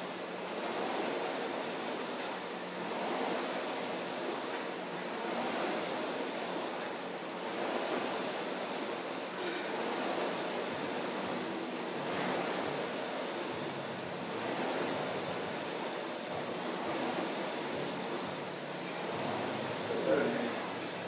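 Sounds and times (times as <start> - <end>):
rowing machine flywheel whooshing: 0.0 - 21.0.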